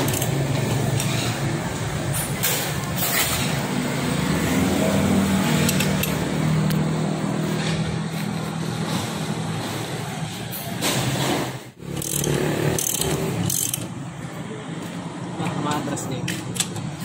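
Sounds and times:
wrench clicking: 0:00.0 - 0:01.3, 0:05.6 - 0:06.8, 0:11.8 - 0:14.0, 0:16.3 - 0:16.9.

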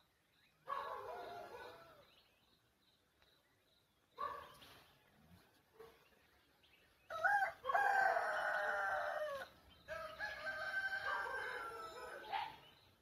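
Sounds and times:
rooster crowing: 0:07.1 - 0:12.3.

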